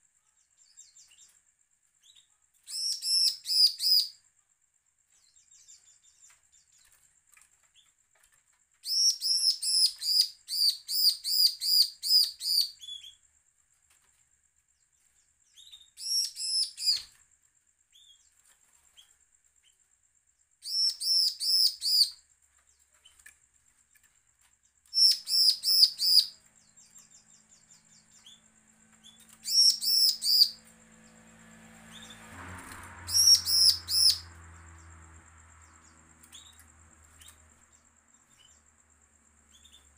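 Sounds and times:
bird singing high ringing notes: 25.0s - 32.3s, 33.0s - 35.0s.

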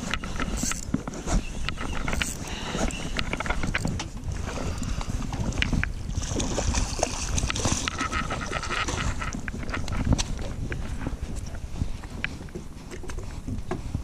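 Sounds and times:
fishing reel ticking: 0.0s - 0.9s, 1.7s - 3.9s
waves slapping boat hull: 0.0s - 14.0s
wind buffeting microphone: 0.0s - 14.0s.

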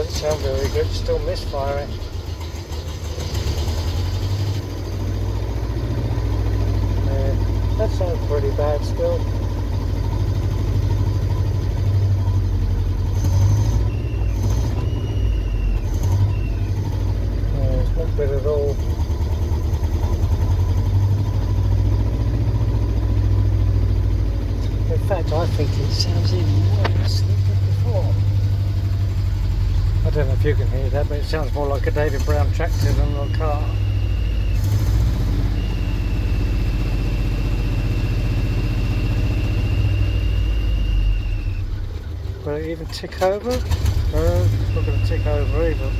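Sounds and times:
engine running rough and misfiring: 0.0s - 45.9s.

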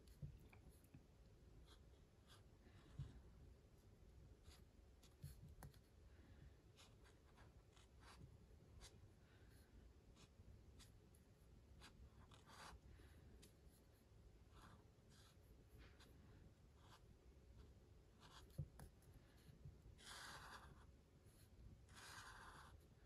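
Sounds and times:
marker scratching on paper: 11.8s - 12.8s, 18.2s - 18.9s, 20.0s - 22.8s.

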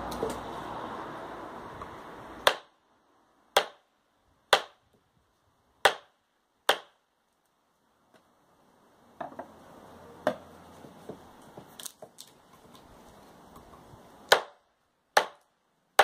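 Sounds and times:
knife chopping into wood: 2.4s - 2.7s, 3.6s - 3.8s, 6.7s - 7.0s, 14.3s - 14.6s, 15.2s - 15.4s.

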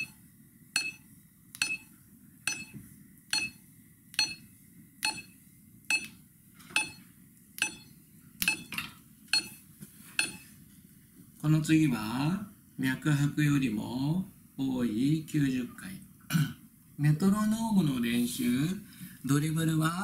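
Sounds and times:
metronome ticking: 0.8s - 1.9s, 2.5s - 3.6s, 4.2s - 4.4s, 5.0s - 5.3s, 5.9s - 6.2s, 7.6s - 8.7s.

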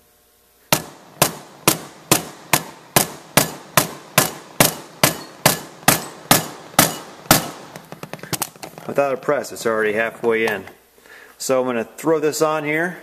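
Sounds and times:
mallet striking metal bearing: 0.7s - 8.1s.

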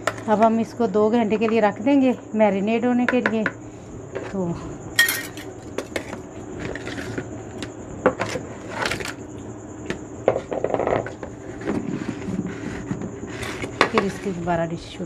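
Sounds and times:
kitchen utensils knocking and scraping: 5.0s - 7.2s, 12.8s - 14.6s.

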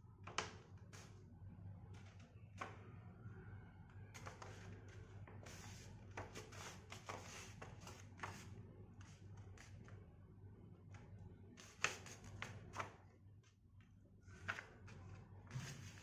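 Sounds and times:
low steady hum: 0.0s - 16.0s
paper rustling and crinkling: 14.3s - 16.0s.

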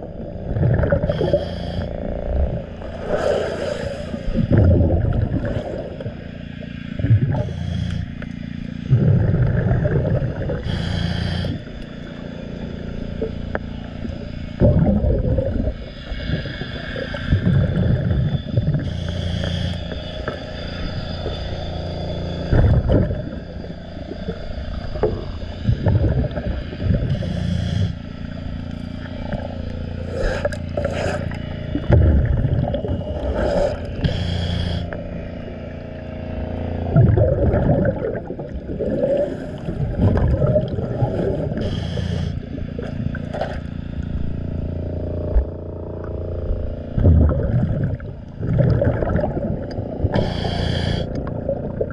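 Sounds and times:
exhaled bubbles hissing: 0.0s - 51.9s
diver regulator breathing underwater: 0.6s - 8.3s, 8.9s - 12.0s, 14.6s - 20.4s, 22.5s - 35.6s, 36.8s - 43.6s, 47.0s - 51.9s.

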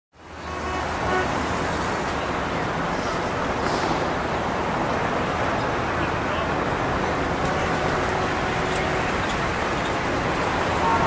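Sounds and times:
outdoor background noise: 0.1s - 11.0s.

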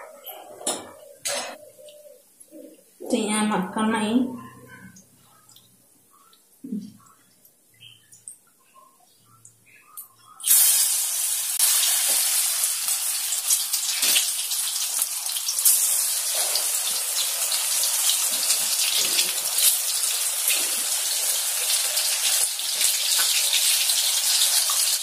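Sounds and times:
batter deep-frying in hot oil: 10.3s - 25.0s.

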